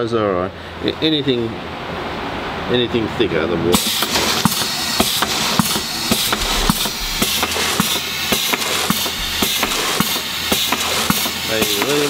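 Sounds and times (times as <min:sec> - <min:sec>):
hiss of air and liquid: 0:03.8 - 0:12.0
valve and piston clicks: 0:03.8 - 0:12.0.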